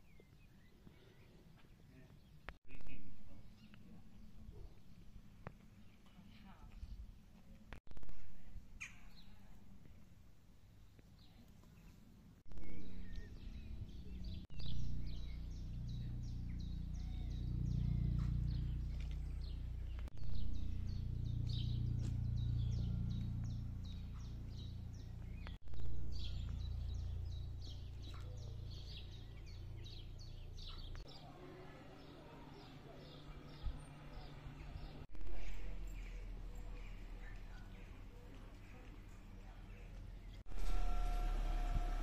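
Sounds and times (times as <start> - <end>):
songbirds chirping: 0.0 - 42.0
low steady rumble: 12.5 - 31.1, 31.7 - 42.0.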